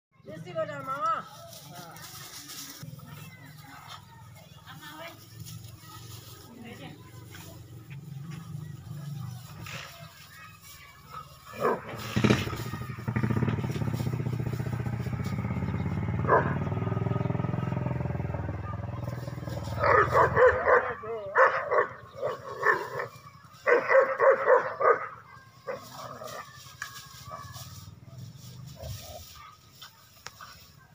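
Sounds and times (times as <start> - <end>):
engine drone: 11.6 - 20.6.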